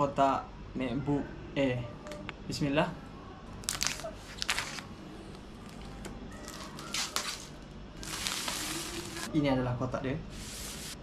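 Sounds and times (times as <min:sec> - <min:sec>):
plastic wrap tearing and crinkling: 0:03.6 - 0:09.3.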